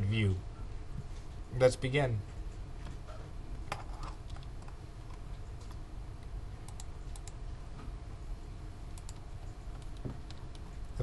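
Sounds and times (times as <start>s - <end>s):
low steady hum: 0.0s - 11.0s
keyboard and mouse clicks: 3.7s - 5.8s, 6.6s - 7.4s, 9.0s - 10.7s.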